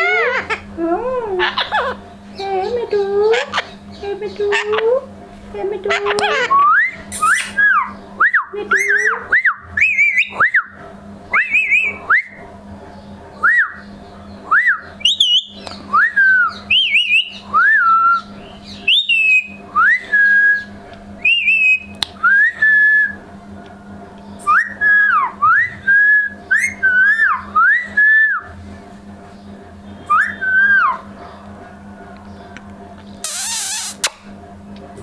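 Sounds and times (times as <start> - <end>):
parakeet whistled calls: 6.3 - 8.0, 14.6 - 19.6, 33.2 - 34.2.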